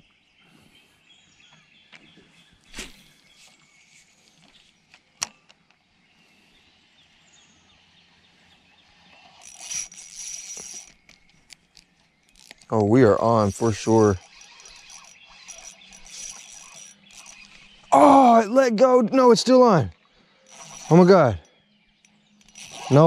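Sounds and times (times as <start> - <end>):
fishing reel whirring: 8.9 - 18.4, 20.3 - 23.0.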